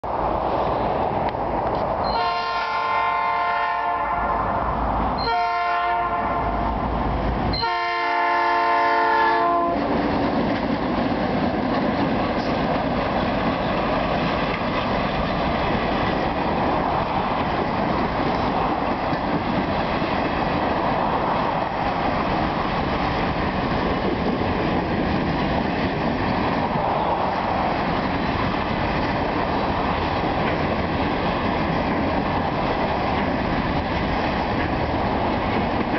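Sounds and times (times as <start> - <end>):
freight train rumbling past: 0.0 - 35.9
locomotive horn blasts: 2.1 - 4.4, 5.2 - 6.6, 7.5 - 9.9.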